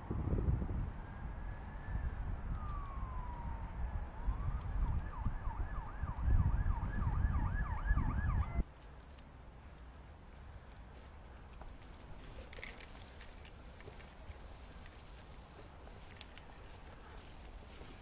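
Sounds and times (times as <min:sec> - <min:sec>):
wind rumble on microphone: 0:00.0 - 0:08.6
emergency vehicle siren: 0:00.1 - 0:08.6.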